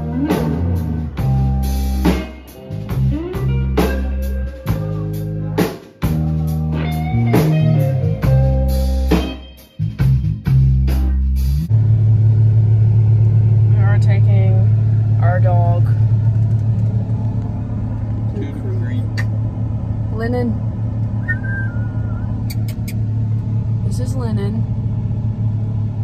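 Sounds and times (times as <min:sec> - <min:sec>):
electric guitars: 0:00.0 - 0:11.7
low bass notes: 0:00.0 - 0:26.0
drum kit and cymbal crashes: 0:01.2 - 0:03.1, 0:08.2 - 0:11.6.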